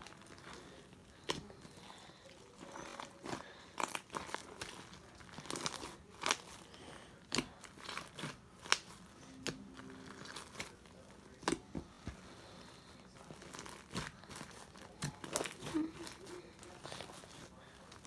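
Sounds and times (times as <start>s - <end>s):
fingers squishing slime: 7.2s - 9.5s, 13.3s - 17.4s.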